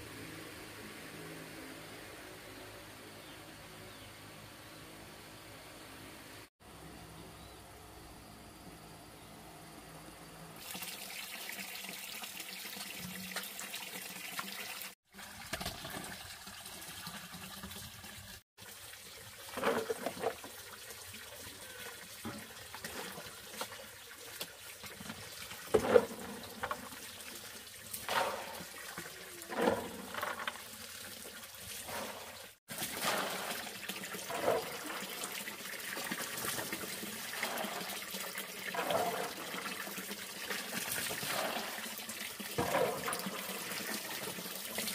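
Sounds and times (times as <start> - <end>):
water running: 10.6 - 44.9
water splashing: 21.6 - 44.9.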